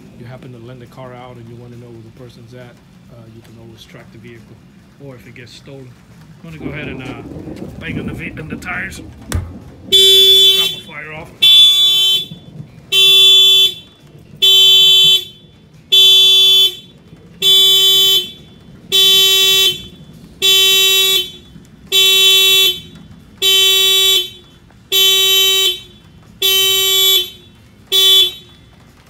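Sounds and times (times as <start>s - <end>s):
car horn alarm pulses: 9.8s - 28.8s.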